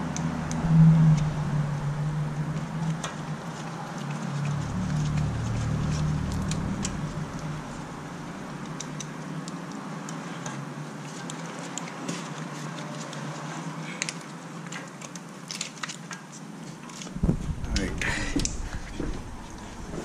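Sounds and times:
low steady hum: 0:00.0 - 0:09.0, 0:17.1 - 0:20.0.

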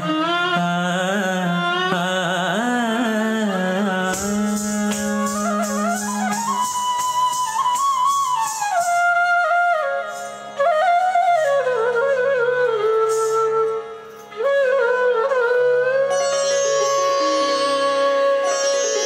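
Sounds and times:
flute melody: 0:04.1 - 0:19.0.

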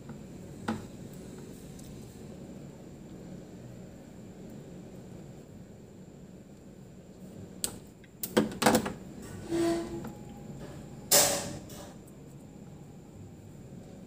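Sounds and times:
short scrape: 0:09.2 - 0:10.1.

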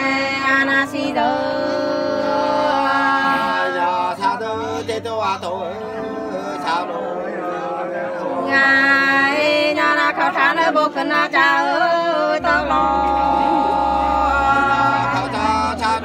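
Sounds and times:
person singing wavering notes: 0:12.4 - 0:16.0.

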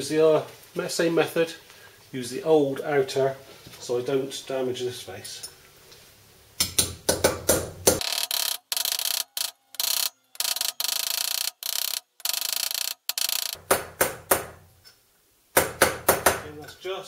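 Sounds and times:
steady bright buzz: 0:08.0 - 0:13.8.

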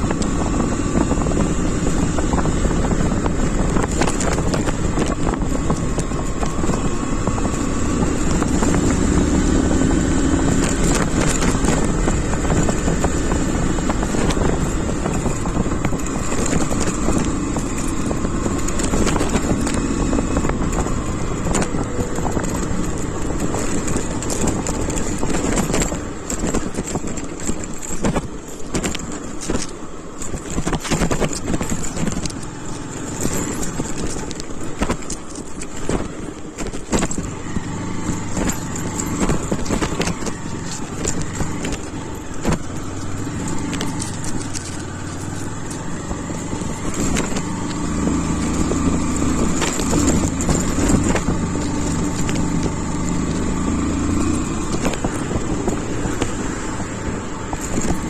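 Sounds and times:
motorcycle engine running: 0:00.0 - 0:58.0
rattles and knocks from bumps: 0:00.0 - 0:58.0.

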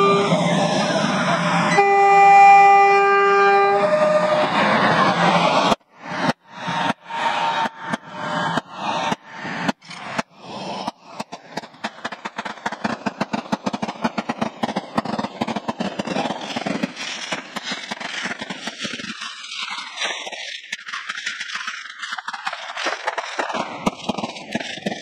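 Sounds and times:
firecrackers popping: 0:05.5 - 0:25.0.

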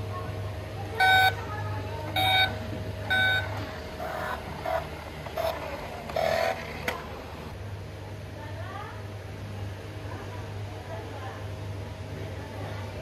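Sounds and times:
electronic toy beeps: 0:01.0 - 0:01.4, 0:02.2 - 0:04.8.

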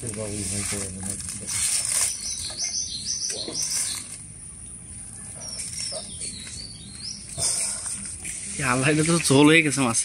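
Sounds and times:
aluminium foil crinkling: 0:00.0 - 0:02.7, 0:03.3 - 0:04.3
small bird chirping: 0:01.8 - 0:07.8.

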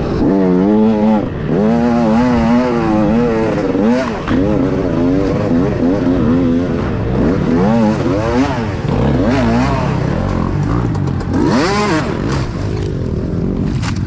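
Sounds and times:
dirt bike engine revving: 0:00.0 - 0:14.0.

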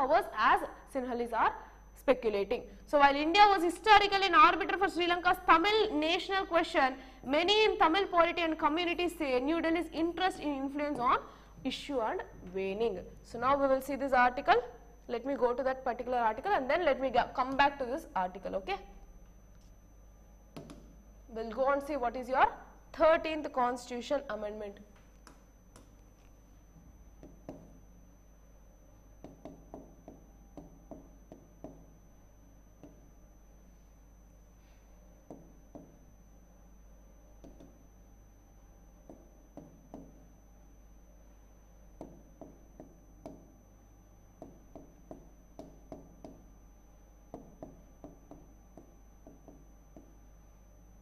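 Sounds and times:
faint steady hum: 0:00.0 - 0:51.0.

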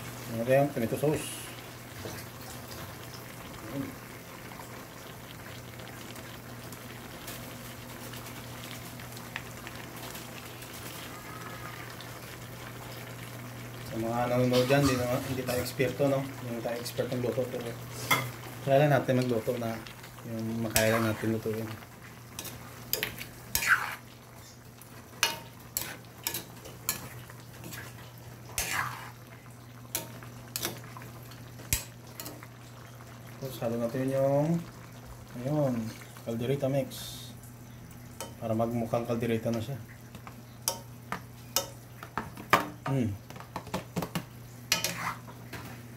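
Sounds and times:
broth simmering in a wok: 0:00.0 - 0:45.9
metal ladle scraping wok: 0:28.5 - 0:29.2, 0:44.7 - 0:45.3.

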